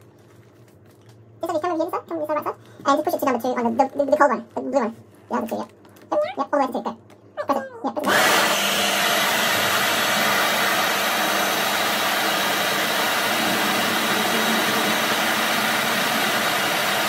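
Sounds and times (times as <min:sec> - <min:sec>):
hair dryer blowing: 0:08.0 - 0:17.0.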